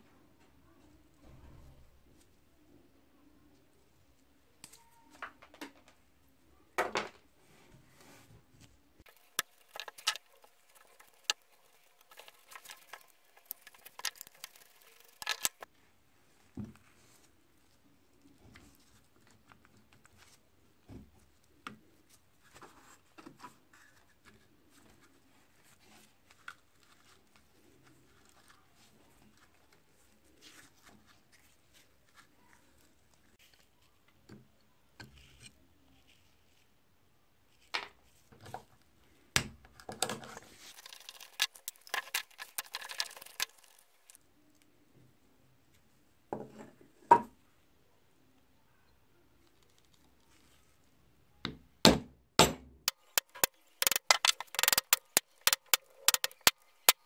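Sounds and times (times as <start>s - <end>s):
metal parts clicking and scraping: 9.1s - 15.7s, 40.2s - 44.2s, 52.9s - 57.0s.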